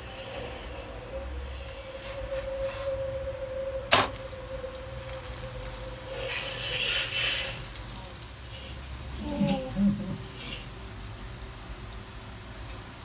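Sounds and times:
flatbread sizzling on hot pan: 3.9 - 13.0.

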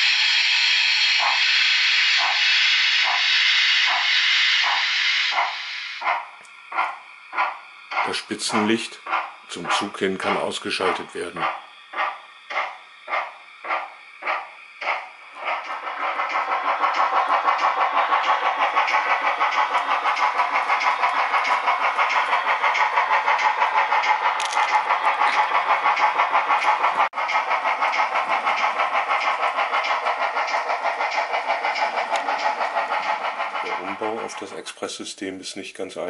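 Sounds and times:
model steam locomotive chuffing: 0.0 - 36.0.

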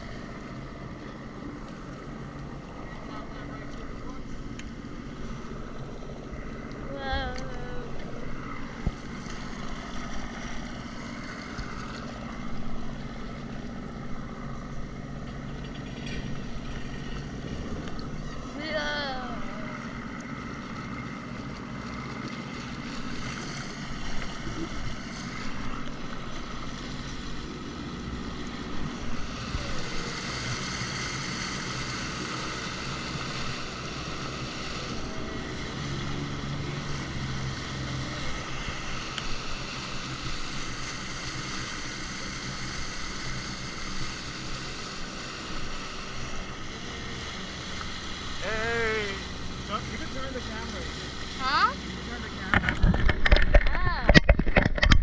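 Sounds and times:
jet ski engine running: 0.0 - 55.0
rushing water: 15.9 - 54.9.

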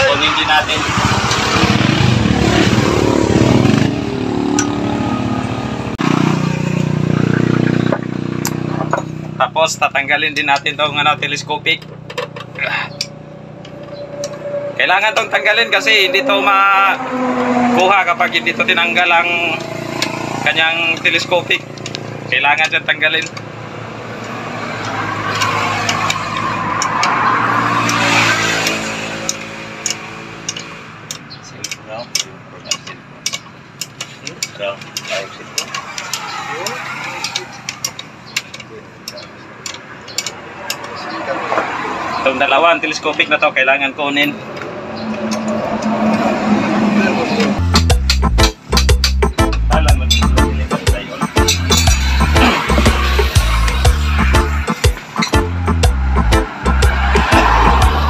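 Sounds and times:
engine passing by: 0.0 - 31.5, 34.8 - 48.0, 49.8 - 58.0
motorcycle engine running: 0.6 - 10.0
spanner clicking on metal: 22.6 - 23.5, 27.8 - 40.9.

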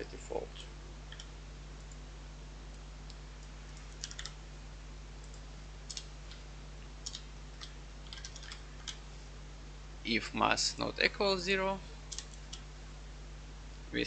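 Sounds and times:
steady low hum: 0.0 - 14.0
keyboard typing: 1.1 - 2.0, 3.4 - 4.4, 5.2 - 6.4, 7.0 - 9.0, 12.1 - 12.6.

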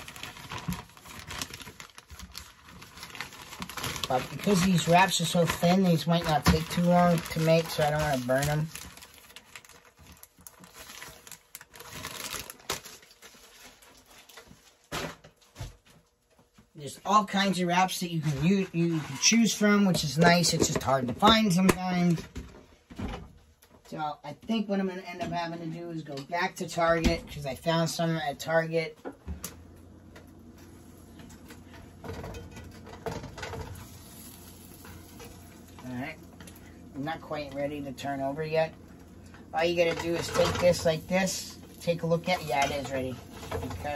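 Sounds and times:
butter sizzling in a frying pan: 33.4 - 35.8.

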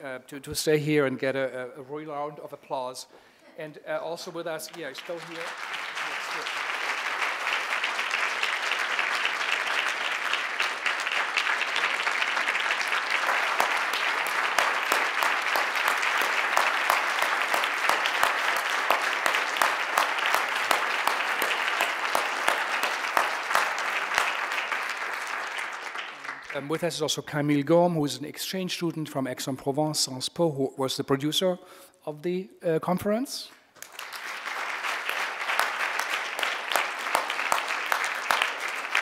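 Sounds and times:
audience applauding: 4.3 - 27.0, 33.8 - 39.0.

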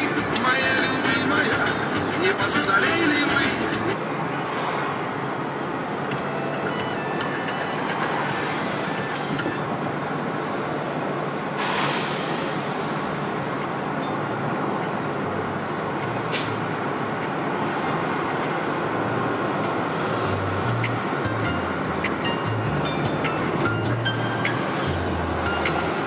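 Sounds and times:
road and engine noise in car: 0.0 - 26.0
rush of noise: 7.6 - 14.0.

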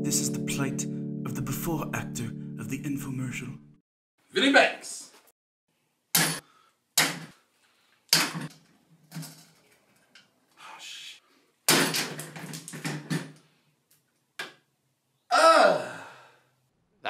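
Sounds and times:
objects clattering: 8.2 - 10.3, 11.7 - 13.4.

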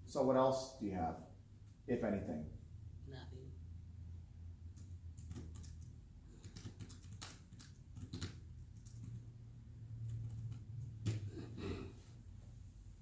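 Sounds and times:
low steady hum: 0.0 - 6.4.

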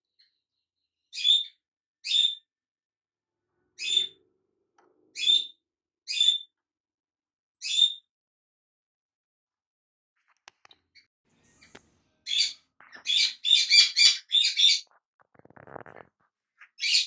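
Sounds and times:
bird chirping: 1.0 - 2.5, 3.7 - 4.3, 5.0 - 6.6, 7.6 - 8.1, 10.9 - 16.0, 16.6 - 17.0.

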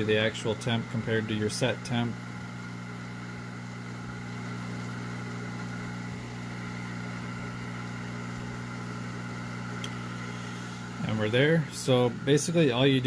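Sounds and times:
heat gun fan humming: 0.0 - 13.0.

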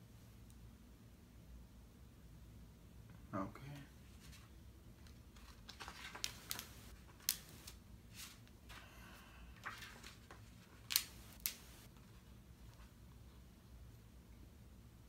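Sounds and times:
paper pages flicking: 5.0 - 8.4, 9.6 - 11.9.

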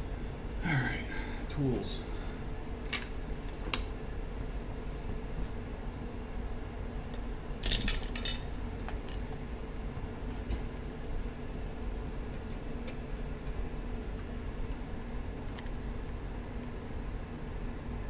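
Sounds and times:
metal tools clinking: 7.6 - 8.4.

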